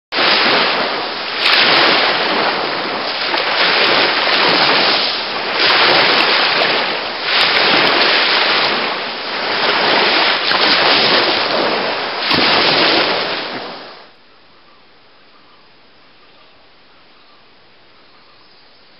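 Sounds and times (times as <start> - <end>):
small waves breaking on beach: 0.1 - 14.2.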